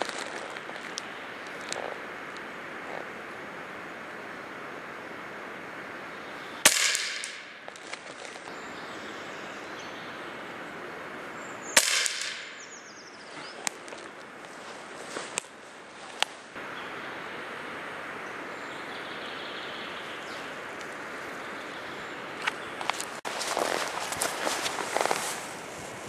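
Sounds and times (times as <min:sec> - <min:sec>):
air rifle shots: 0:06.6 - 0:07.9, 0:11.8 - 0:12.7.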